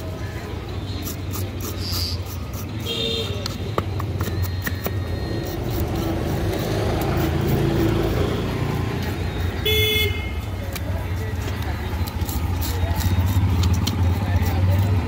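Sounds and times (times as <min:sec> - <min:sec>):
street traffic: 0:00.0 - 0:15.0
knife scraping fish scales: 0:00.9 - 0:03.6, 0:04.2 - 0:09.6, 0:11.7 - 0:15.0
vehicle horn toot: 0:02.8 - 0:03.4, 0:09.6 - 0:10.4.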